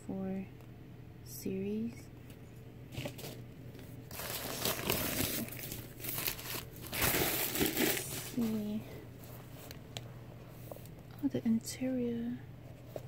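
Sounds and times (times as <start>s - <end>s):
paper packaging crinkling: 2.9s - 9.8s.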